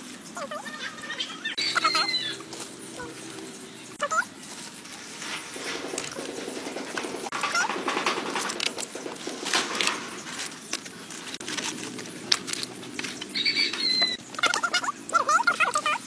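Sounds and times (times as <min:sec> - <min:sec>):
hands rustling and clicking: 0:01.7 - 0:16.0.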